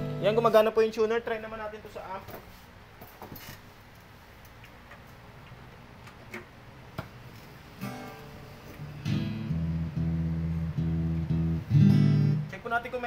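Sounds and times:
amplified guitar strumming: 0.0s - 0.6s, 7.8s - 12.5s.

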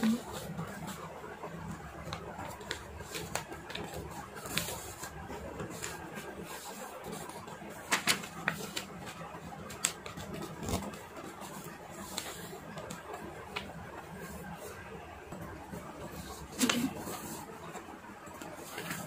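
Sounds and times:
paper being folded and creased: 2.0s - 14.5s, 16.0s - 17.4s.

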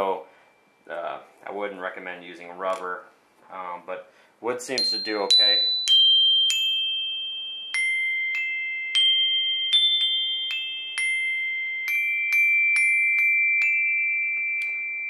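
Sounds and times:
xylophone notes ringing: 4.8s - 15.0s.

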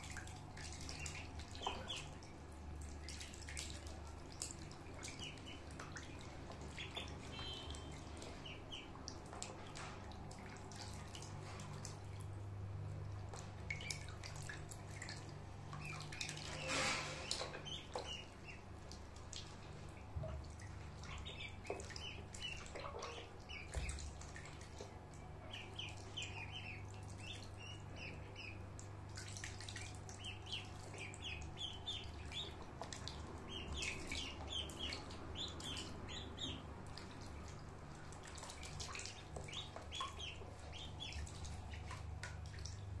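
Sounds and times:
water splashing and dripping: 0.0s - 43.0s
ducklings peeping: 0.7s - 2.2s, 5.0s - 9.0s, 15.8s - 18.7s, 21.0s - 24.6s, 25.4s - 28.7s, 29.5s - 37.0s, 38.3s - 42.1s.

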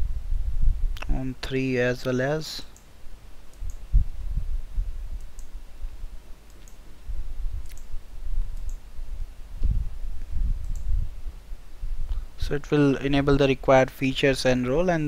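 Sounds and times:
computer mouse clicks: 3.5s - 3.8s, 5.2s - 5.5s, 6.5s - 6.8s, 7.6s - 7.9s, 8.6s - 8.8s, 10.6s - 10.9s.

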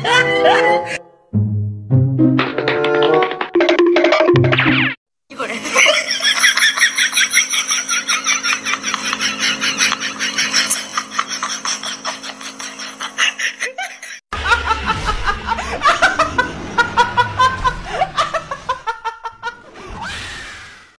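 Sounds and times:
young woman laughing: 5.4s - 19.6s.

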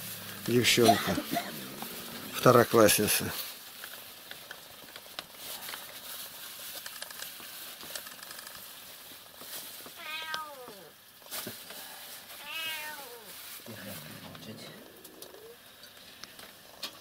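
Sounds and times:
faint clicks and rustling: 0.4s - 12.4s
cat meowing: 10.0s - 11.0s, 12.4s - 13.4s.

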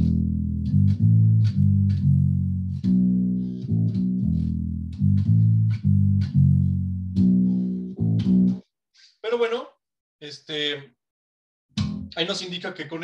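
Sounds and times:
slap bass guitar riff: 0.0s - 8.6s, 11.8s - 12.2s.

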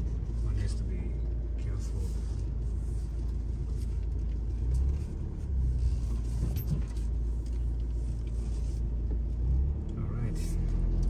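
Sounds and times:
vehicle rumbling over rough track: 0.0s - 11.0s.

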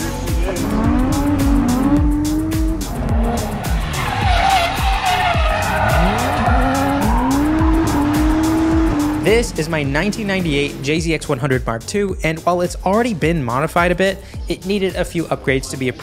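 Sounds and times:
car engine revving: 0.0s - 10.9s
music with steady beat: 0.0s - 16.0s
tyres squealing: 3.2s - 8.8s.

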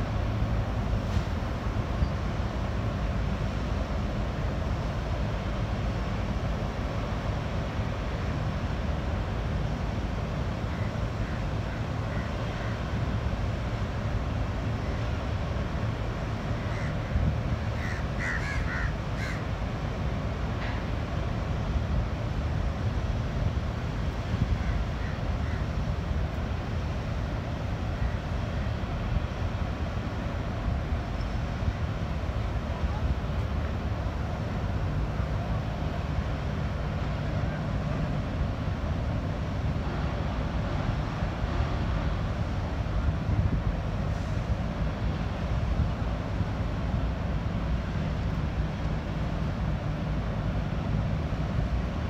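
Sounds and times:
low rumble of boat engines: 0.0s - 52.0s
crows cawing: 17.8s - 19.4s.

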